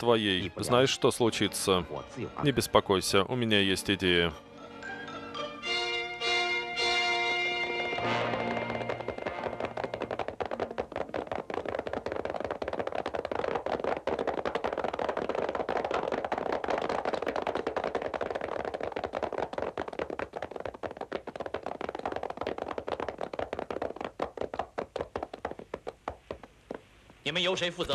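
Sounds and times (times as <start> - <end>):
horses galloping: 6.8 - 27.3.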